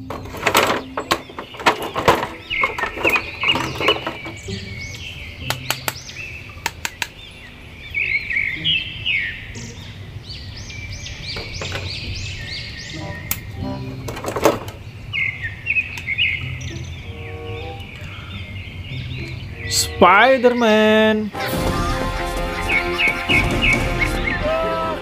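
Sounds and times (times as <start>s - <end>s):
plastic blister tray clicking and crinkling: 0.0s - 4.5s
high chirping: 0.0s - 25.0s.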